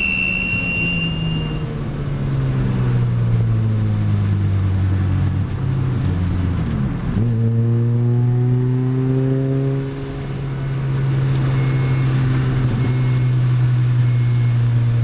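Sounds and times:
short high electronic beep: 0.0 - 1.7, 14.1 - 14.6
car engine running: 0.0 - 15.0.

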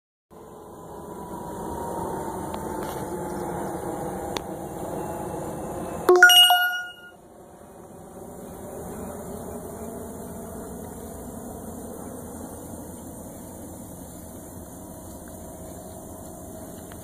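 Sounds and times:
bright bell-like ding: 6.1 - 7.1
faint falling tone: 6.1 - 7.1.

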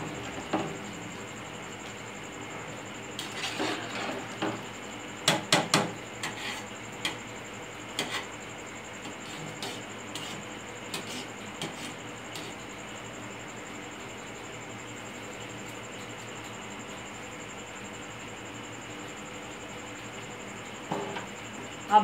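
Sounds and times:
metal ladle scraping a pot: 3.2 - 4.4, 6.2 - 6.7.

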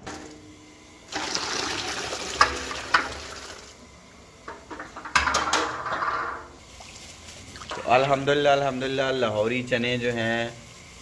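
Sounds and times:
water pouring and splashing: 6.6 - 8.2.

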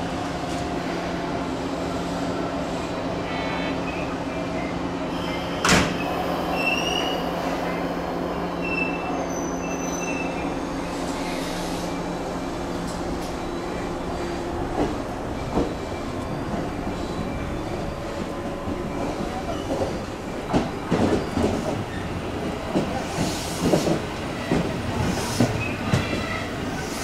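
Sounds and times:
train doors shutting clunk: 5.2 - 7.2.

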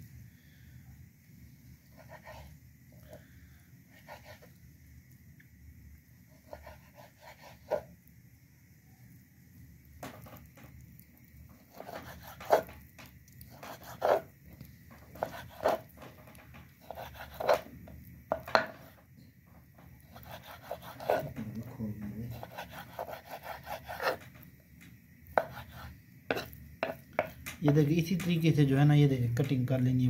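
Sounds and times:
knife knocking on cutting board: 18.3 - 18.8, 26.3 - 28.4.

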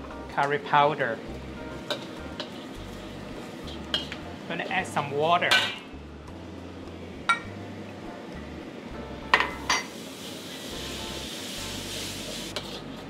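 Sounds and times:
water sizzling in hot wok: 0.7 - 5.3, 9.4 - 13.0.

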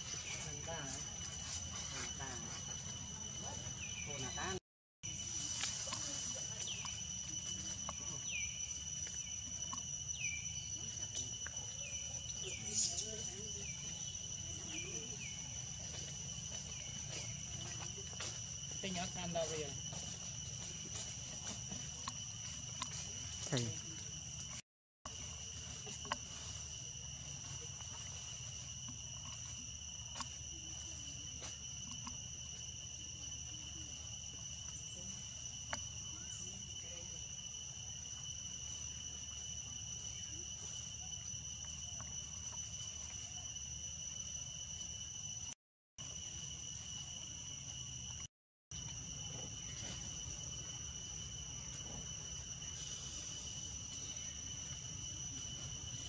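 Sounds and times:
high-pitched insect drone: 0.0 - 56.0.

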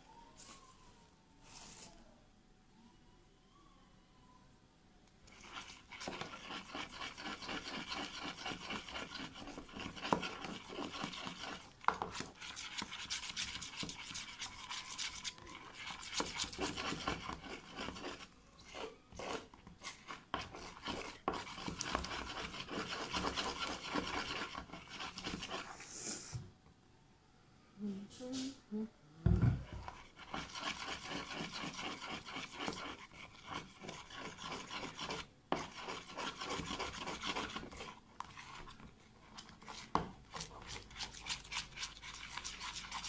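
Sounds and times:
utensil scraping slime in tub: 5.3 - 25.8, 29.7 - 43.0.

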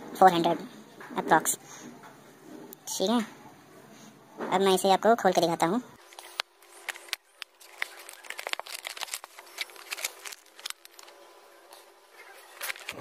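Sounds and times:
cardboard and plastic crinkling: 6.0 - 13.0.

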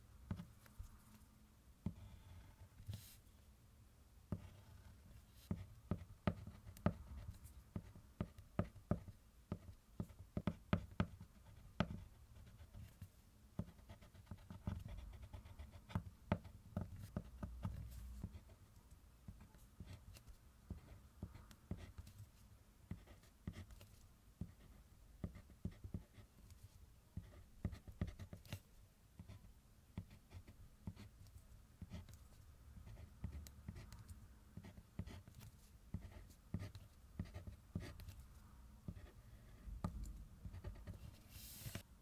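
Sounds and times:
pencil scratching on paper: 4.3 - 13.0, 13.6 - 18.5, 27.2 - 28.6, 32.9 - 38.2, 39.8 - 41.8.

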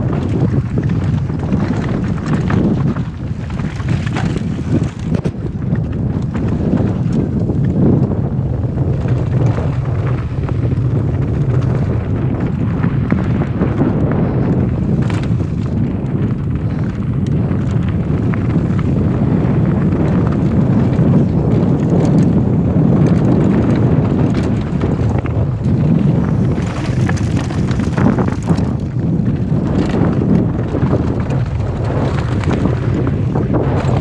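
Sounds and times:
bike clicks and knocks on gravel: 0.0 - 34.0
wind buffeting microphone: 0.0 - 34.0.

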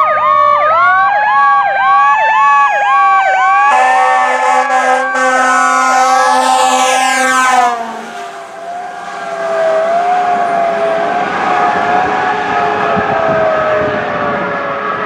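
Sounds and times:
fire engine siren wailing: 0.0 - 15.0
truck on wet road: 3.6 - 15.0.

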